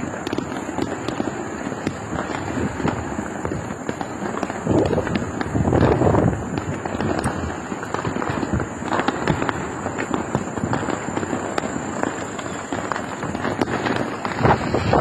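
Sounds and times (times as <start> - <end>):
firecrackers popping and cracking: 0.0 - 15.0.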